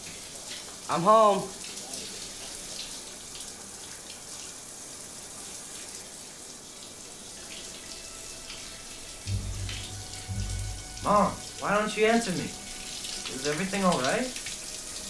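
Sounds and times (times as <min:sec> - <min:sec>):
water running from a tap: 0:00.0 - 0:15.0
low hum: 0:09.3 - 0:13.4.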